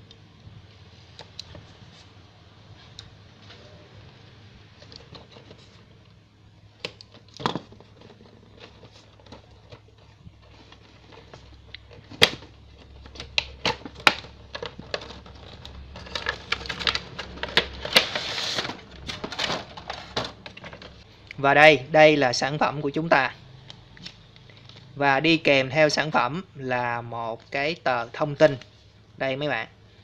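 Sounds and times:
plastic crinkling: 0:07.0 - 0:21.1.

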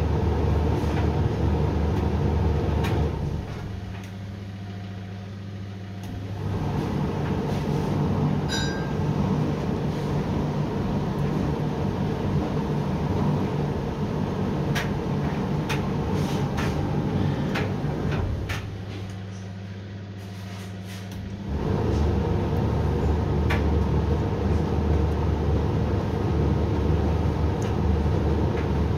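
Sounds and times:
washer-dryer drum tumbling: 0:06.2 - 0:19.1.

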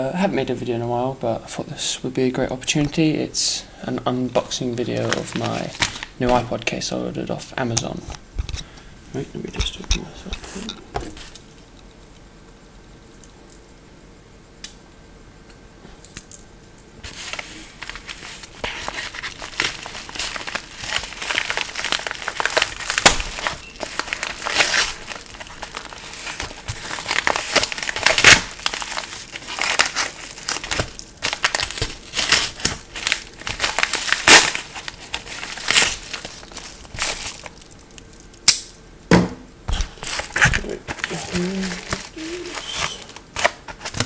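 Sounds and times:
packaging crinkling and crunching: 0:04.6 - 0:06.8, 0:17.0 - 0:38.7, 0:39.7 - 0:44.0.

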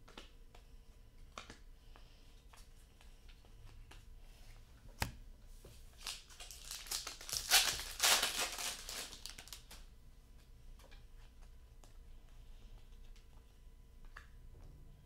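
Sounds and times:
foil wrapper crinkling and tearing: 0:06.0 - 0:09.8.

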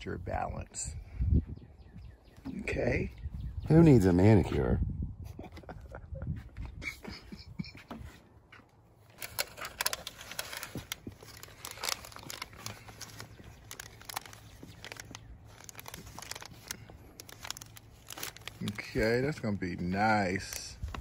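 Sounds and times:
hands rustling potting mix in tray: 0:08.0 - 0:21.0.

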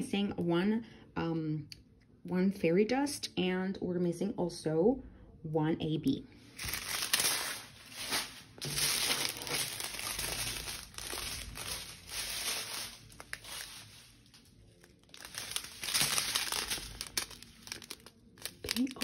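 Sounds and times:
plastic bags crinkling: 0:06.5 - 0:19.0.

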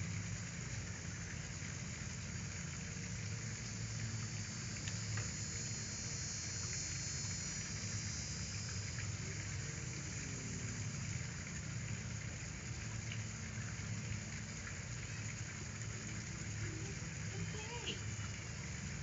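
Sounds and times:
background hiss: 0:00.0 - 0:19.0
faint ticks: 0:03.2 - 0:10.0.

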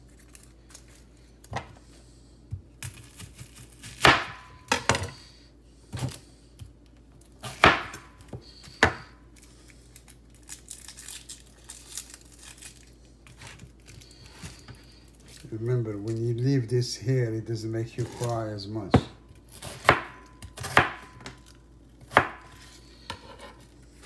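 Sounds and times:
onion skin crackling and rustling: 0:00.0 - 0:01.5, 0:08.2 - 0:16.7
knife cutting onion: 0:02.5 - 0:05.3, 0:07.4 - 0:09.3, 0:18.0 - 0:24.0.

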